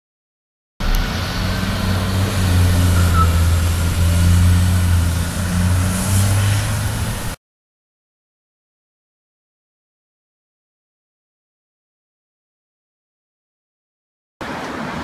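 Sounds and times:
truck engine drone: 0.8s - 7.4s.

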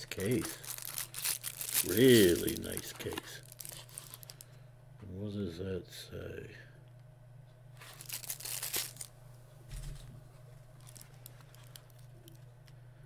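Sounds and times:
packaging crinkling: 0.0s - 4.5s, 7.8s - 9.1s, 10.4s - 12.5s.

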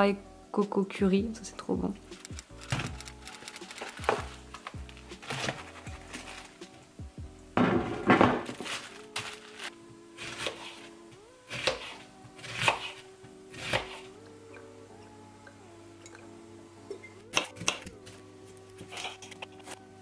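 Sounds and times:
background music with held tones: 0.0s - 20.0s
knife cutting onion on plastic board: 10.2s - 10.9s, 11.5s - 14.1s.

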